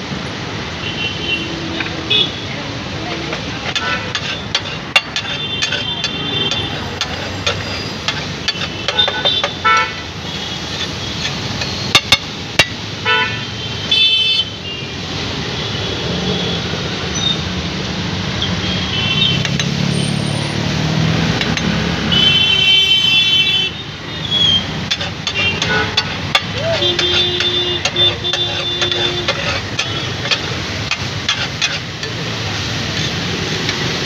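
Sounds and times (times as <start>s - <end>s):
busy street traffic: 0.0s - 34.0s
vehicle horns honking: 0.8s - 2.5s, 5.2s - 12.0s, 13.0s - 14.9s, 18.6s - 19.6s, 22.1s - 24.6s, 25.2s - 30.4s
spatula striking iron griddle: 3.1s - 10.0s, 10.7s - 12.8s, 24.8s - 34.0s.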